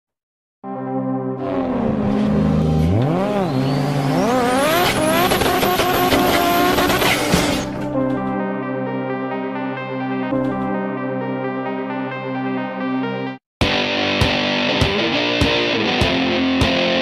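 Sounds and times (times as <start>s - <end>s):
synth music: 0.6s - 7.0s, 7.6s - 13.4s
car engine revving: 1.4s - 7.9s.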